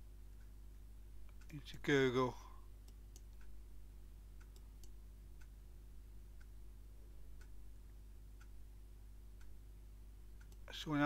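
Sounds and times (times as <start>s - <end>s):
low steady hum: 0.0s - 11.0s
clock ticking: 1.2s - 3.7s, 4.3s - 5.6s, 6.3s - 6.6s, 7.3s - 7.7s, 8.3s - 8.7s, 9.3s - 9.6s, 10.2s - 11.0s.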